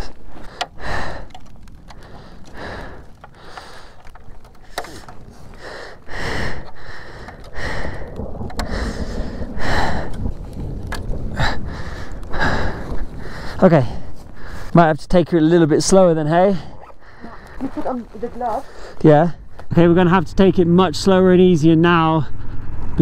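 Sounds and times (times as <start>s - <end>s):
person breathing hard: 0.0s - 14.8s, 16.6s - 17.7s
wind rumbling on microphone: 0.0s - 23.0s.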